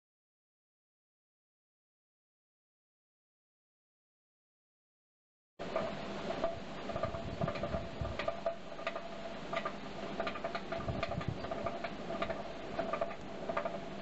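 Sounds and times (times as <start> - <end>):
forge fire crackling and popping: 5.7 - 14.0.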